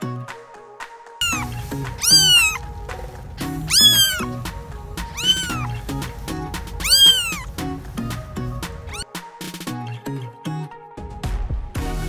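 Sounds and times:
background music with steady beat: 0:00.0 - 0:12.0
kitten mewing: 0:01.2 - 0:02.6, 0:03.4 - 0:06.0, 0:06.8 - 0:07.5.

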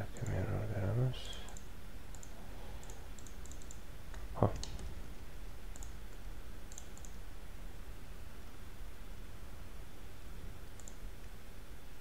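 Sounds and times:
steady low hum: 0:00.0 - 0:12.0
computer mouse clicks: 0:00.2 - 0:00.4, 0:01.3 - 0:04.9, 0:05.7 - 0:07.2, 0:10.7 - 0:11.3.

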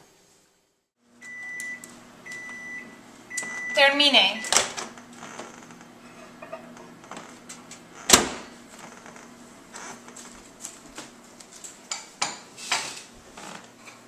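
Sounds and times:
dishes and utensils clinking: 0:06.3 - 0:06.7.

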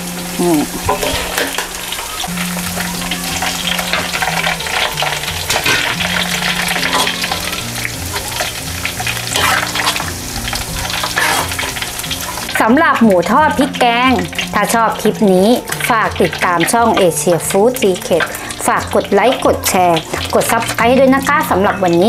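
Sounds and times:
oil bubbling and crackling: 0:00.0 - 0:22.0
wire skimmer scraping and clinking: 0:00.7 - 0:21.1.

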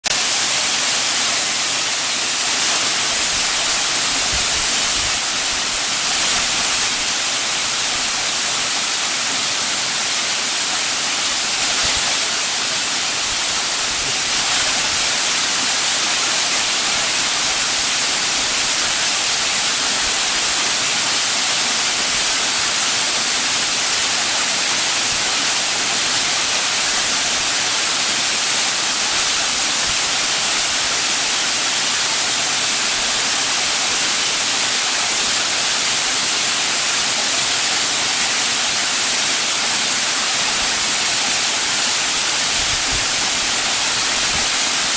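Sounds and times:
waterfall pouring into pool: 0:00.0 - 0:44.9.

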